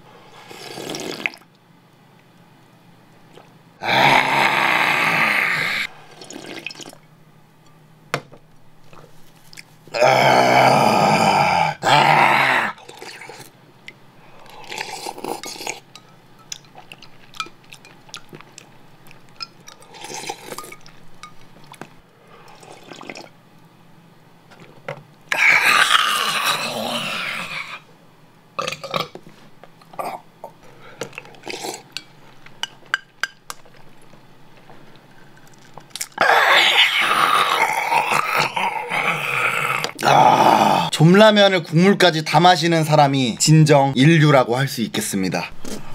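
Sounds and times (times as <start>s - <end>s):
soft slurps: 3.3s - 3.6s, 5.9s - 7.0s, 12.8s - 13.6s, 14.4s - 15.9s, 22.5s - 23.3s
man gagging: 10.0s - 12.8s.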